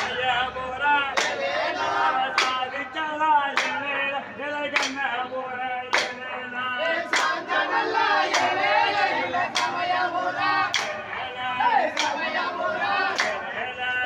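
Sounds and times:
folk song singing: 0.0 - 14.0
hands clapping: 1.1 - 1.4, 2.3 - 2.6, 3.5 - 3.9, 4.7 - 5.0, 5.9 - 6.2, 7.1 - 7.5, 8.2 - 8.6, 9.5 - 9.9, 10.7 - 13.5.

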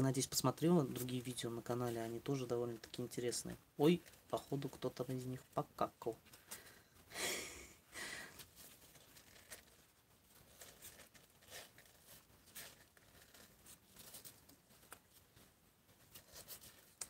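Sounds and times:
kittens rustling on cardboard: 8.3 - 17.0.

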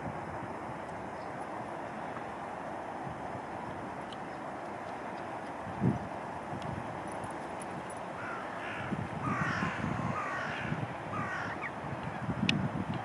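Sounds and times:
crow cawing: 8.2 - 11.7.

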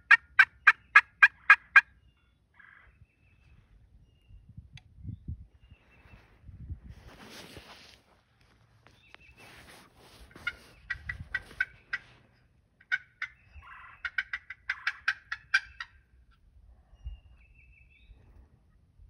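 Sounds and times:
turkey yelping: 0.0 - 1.9, 10.3 - 12.2, 12.8 - 16.1
soft scratchy rustles: 5.9 - 12.4.

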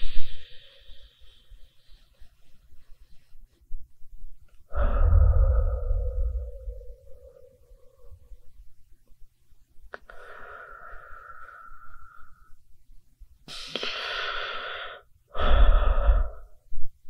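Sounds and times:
person breathing: 0.0 - 3.2, 4.7 - 8.6, 10.0 - 12.7, 13.5 - 16.8
low rumble: 4.6 - 8.9.

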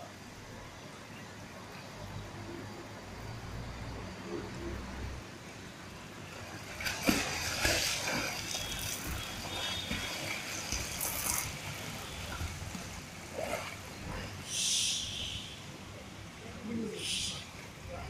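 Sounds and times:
swimmer splashing water: 5.5 - 18.0.

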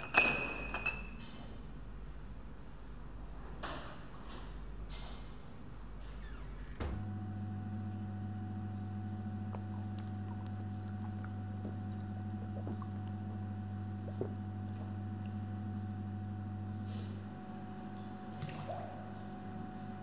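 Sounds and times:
steady low hum: 0.0 - 20.0
drinking from glass bottle: 9.5 - 15.0.

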